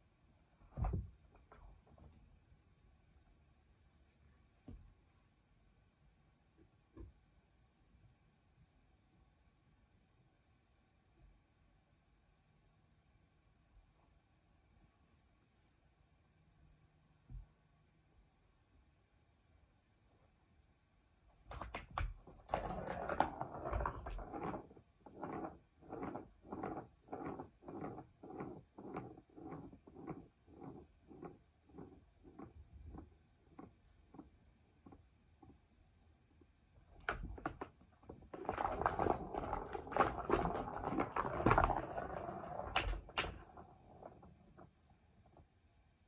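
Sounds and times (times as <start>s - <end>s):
ball rolling round track: 21.5s - 35.6s, 36.9s - 45.5s
ball rattling in toy track: 22.3s - 31.4s, 37.1s - 44.2s.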